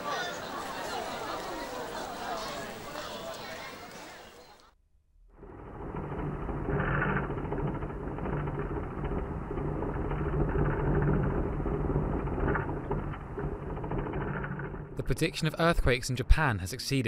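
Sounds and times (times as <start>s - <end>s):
deep earthquake rumble: 5.3s - 15.4s
rattling and clatter: 5.4s - 15.4s.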